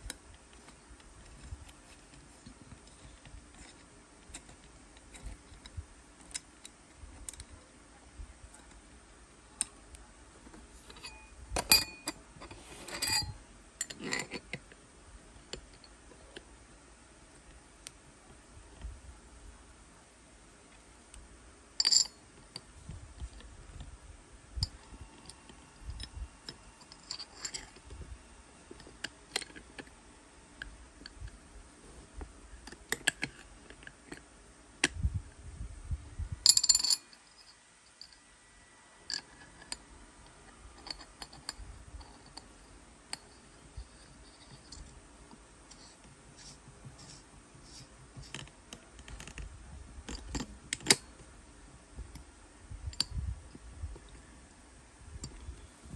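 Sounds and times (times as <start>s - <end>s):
metal parts clicking and tapping: 0.0s - 7.5s, 10.9s - 14.7s, 21.8s - 23.5s, 24.6s - 27.9s, 28.7s - 29.9s, 32.6s - 34.2s, 36.4s - 38.2s, 39.1s - 39.8s, 40.8s - 42.5s, 48.2s - 51.2s.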